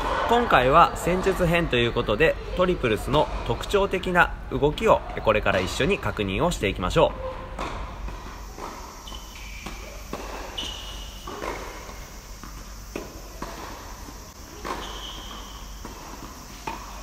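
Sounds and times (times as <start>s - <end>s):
rackets striking tennis ball: 7.4s - 17.0s
ball bouncing on hard court: 7.6s - 17.0s.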